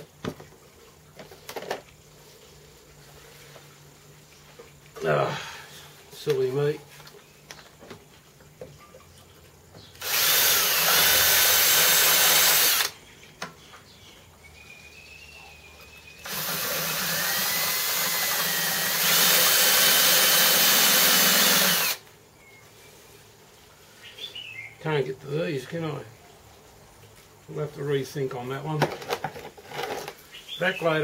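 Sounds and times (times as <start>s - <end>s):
electric drill whining: 10.0s - 13.0s, 16.2s - 22.0s.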